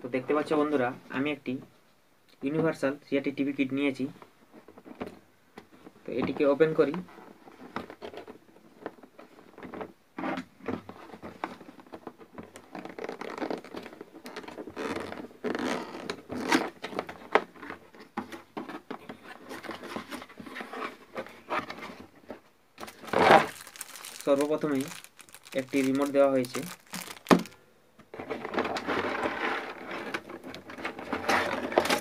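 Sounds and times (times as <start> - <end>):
cardboard rustling: 6.2 - 27.6, 28.2 - 32.0
cardboard box being torn open: 22.8 - 27.6.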